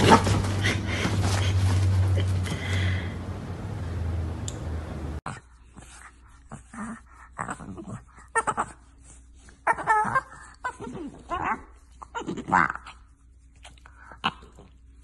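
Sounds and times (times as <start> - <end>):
dog whining: 9.6 - 12.9.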